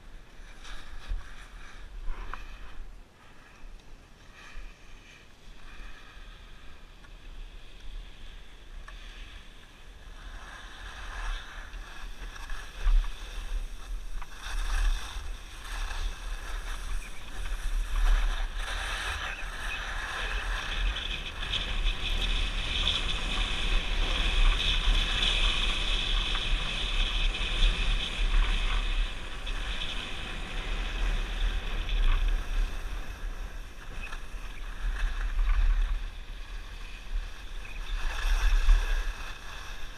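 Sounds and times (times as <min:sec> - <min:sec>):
skis scraping over snow: 0:00.0 - 0:39.9
wind buffeting microphone: 0:10.0 - 0:39.9.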